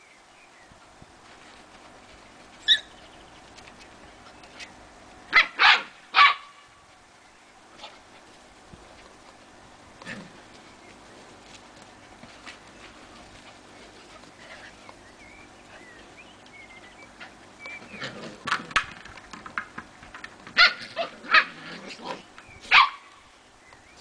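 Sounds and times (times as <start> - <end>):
puppies barking and yapping: 2.6 - 4.7.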